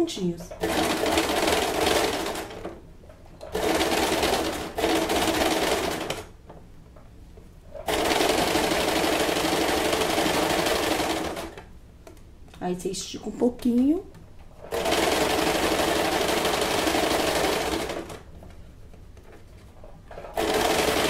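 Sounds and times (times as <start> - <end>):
electric sewing machine stitching: 0.4 - 2.8, 3.4 - 6.3, 7.8 - 11.7, 14.6 - 18.3, 20.1 - 21.0.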